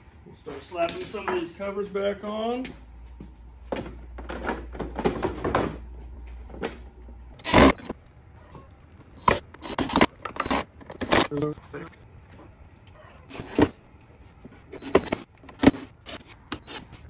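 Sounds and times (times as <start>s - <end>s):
plastic knocks and clatters: 3.7s - 5.9s.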